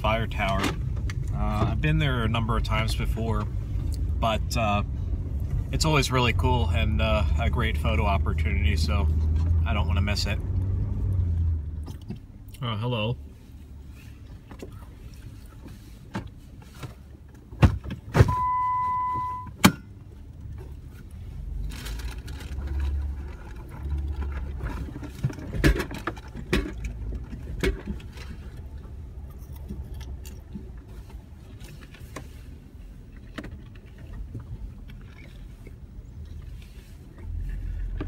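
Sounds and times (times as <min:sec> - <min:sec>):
engine and tyre rumble: 0:00.0 - 0:38.0
electronic beep: 0:18.3 - 0:19.6.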